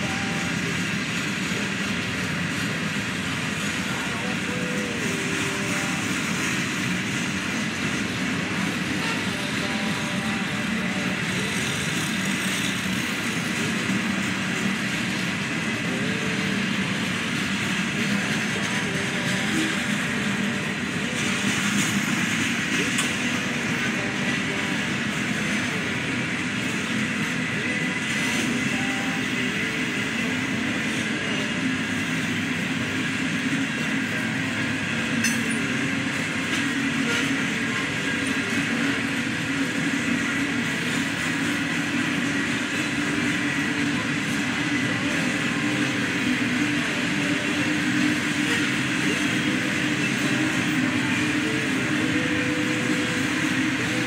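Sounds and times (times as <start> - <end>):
steel wheels running on rails: 0.0 - 54.0.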